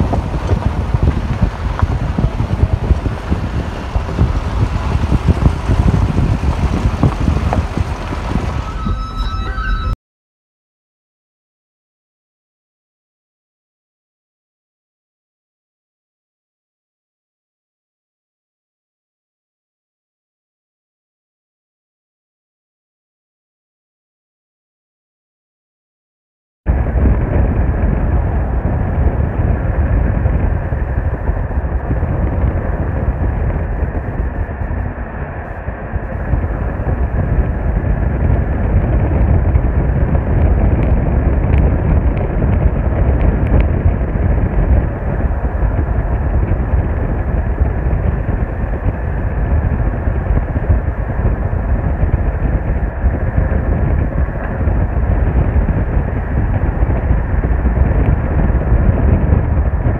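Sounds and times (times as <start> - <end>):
road noise: 0.0 - 10.0, 26.7 - 59.9
vehicle engine rumble: 0.0 - 10.0, 26.7 - 59.9.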